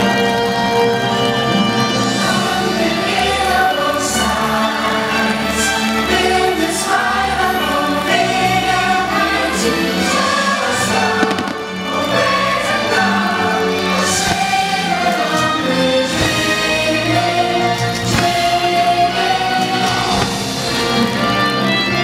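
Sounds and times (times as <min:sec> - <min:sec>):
choir singing: 0:00.0 - 0:22.0
orchestral music: 0:00.0 - 0:22.0
fireworks banging and crackling: 0:10.9 - 0:12.2, 0:18.0 - 0:18.8, 0:19.8 - 0:21.0.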